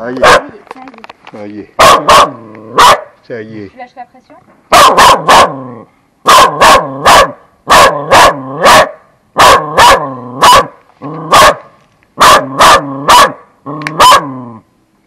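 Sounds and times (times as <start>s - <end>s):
dog barking: 0.2s - 0.6s, 1.8s - 3.1s, 4.7s - 5.6s, 6.3s - 10.7s, 11.3s - 11.6s, 12.2s - 13.4s, 14.0s - 14.3s.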